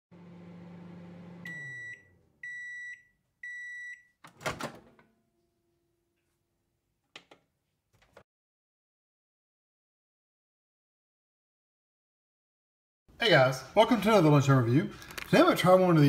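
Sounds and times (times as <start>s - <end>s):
microwave oven hum: 0.1s - 4.0s
microwave beeps: 1.0s - 4.2s.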